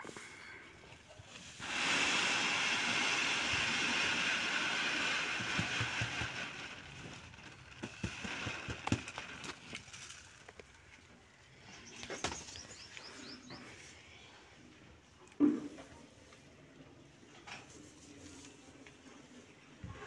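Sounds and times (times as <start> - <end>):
grain pouring onto a tray: 1.4 - 10.8.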